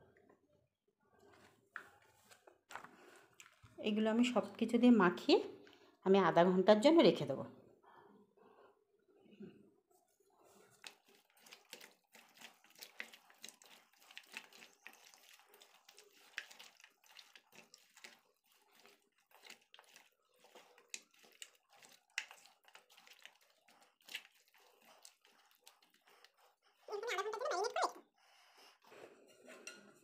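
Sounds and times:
wet squelching of kneaded meat: 0:10.4 - 0:28.0.

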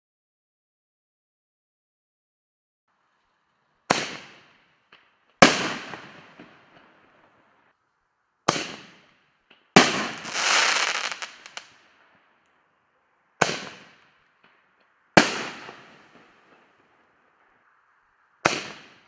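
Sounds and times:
crackling hiss of fireworks: 0:02.9 - 0:19.0
fireworks bangs: 0:03.9 - 0:07.6, 0:08.5 - 0:12.2, 0:13.4 - 0:17.7, 0:18.4 - 0:19.0.

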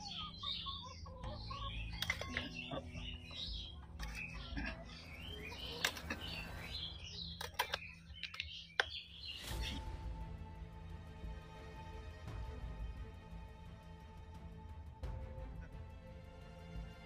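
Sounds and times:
small birds chirping: 0:00.0 - 0:09.9.

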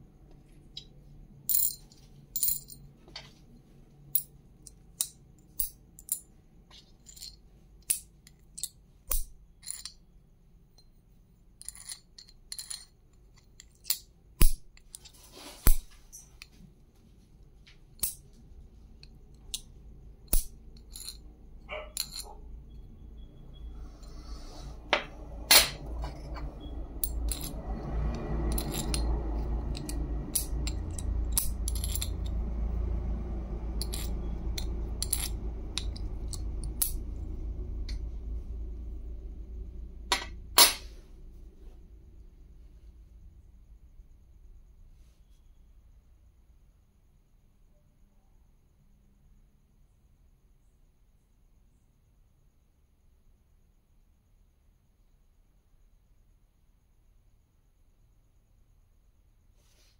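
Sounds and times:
coins clicking and tapping: 0:00.7 - 0:02.9, 0:04.1 - 0:10.0, 0:11.6 - 0:16.5, 0:18.0 - 0:18.3, 0:20.3 - 0:22.4, 0:24.9 - 0:32.4, 0:33.8 - 0:37.0
low rumbling noise: 0:22.5 - 0:44.3.

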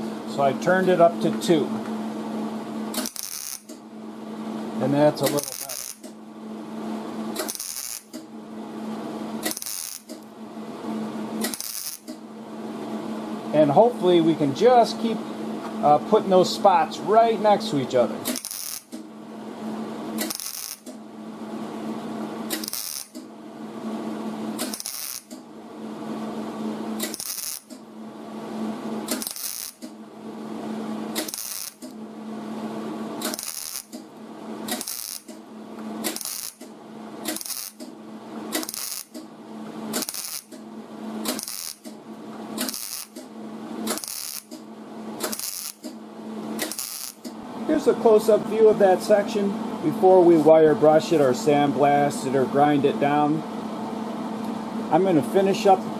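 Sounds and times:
welding arc crackling: 0:02.9 - 0:03.8, 0:04.8 - 0:06.2, 0:07.3 - 0:08.3, 0:09.3 - 0:10.3, 0:11.4 - 0:12.2, 0:18.2 - 0:19.1, 0:20.1 - 0:21.0, 0:22.4 - 0:23.3, 0:24.5 - 0:25.4, 0:27.0 - 0:27.9, 0:29.1 - 0:30.0, 0:31.1 - 0:32.0, 0:33.1 - 0:35.4, 0:36.0 - 0:39.3, 0:39.9 - 0:42.0, 0:42.6 - 0:46.0, 0:46.6 - 0:47.4.

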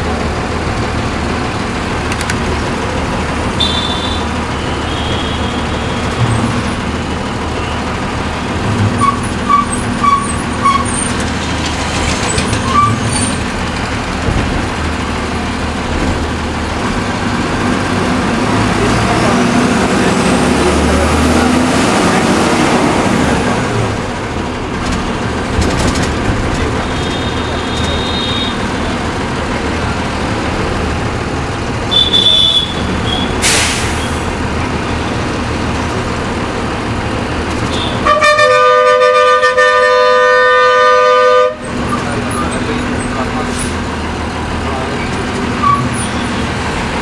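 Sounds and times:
vehicle road noise: 0:00.0 - 0:47.0
loud multi-tone horn: 0:03.6 - 0:06.6, 0:31.9 - 0:33.7, 0:37.7 - 0:41.7.

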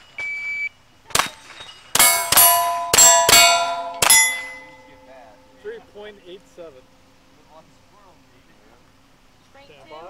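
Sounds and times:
steel target plate ringing: 0:01.5 - 0:05.8.

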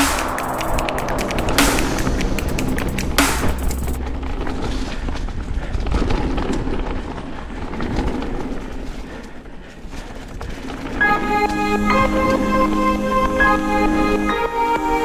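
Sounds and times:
bike tyres on dirt: 0:04.0 - 0:11.8.

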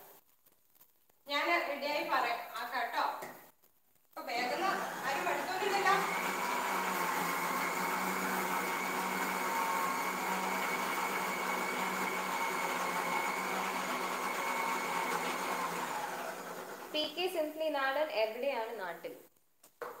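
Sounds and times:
mixer grinder running: 0:04.2 - 0:17.0.

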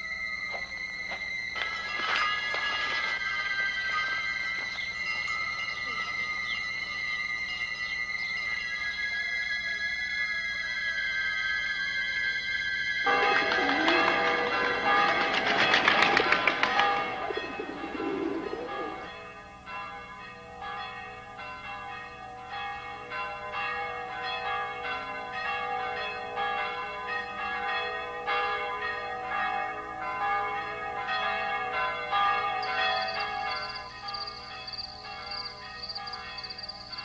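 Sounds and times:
church bells ringing: 0:00.0 - 0:37.0
thin high steady tone: 0:32.6 - 0:37.0.

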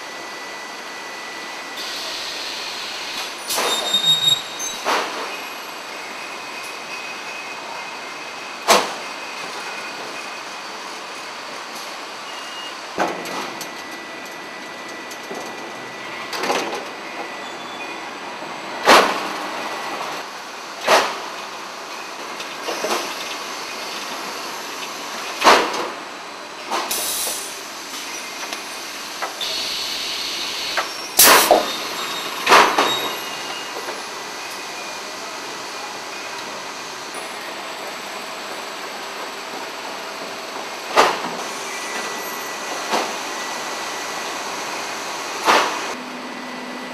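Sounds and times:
roller conveyors running: 0:00.1 - 0:46.9
compressed air hissing: 0:26.9 - 0:27.6, 0:29.4 - 0:31.7.

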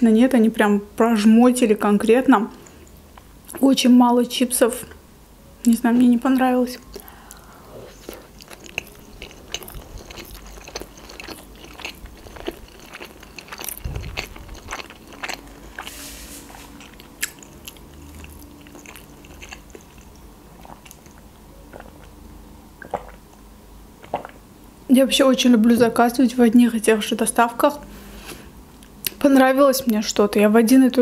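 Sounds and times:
crunchy chewing: 0:06.9 - 0:22.2.

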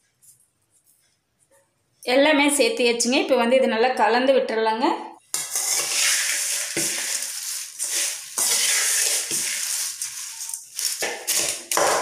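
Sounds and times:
crisp flakes tossed in metal bowl: 0:05.4 - 0:12.0.

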